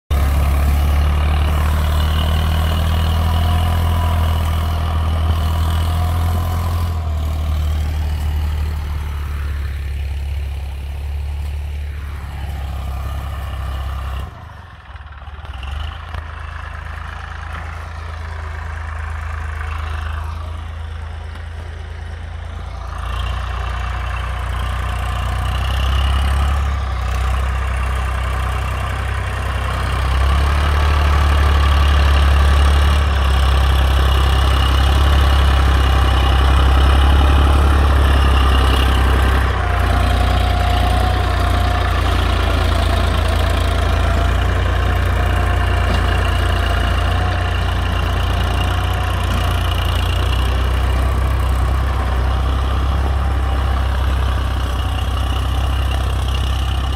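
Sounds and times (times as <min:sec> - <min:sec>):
tractor diesel engine drone: 0:00.0 - 0:56.9.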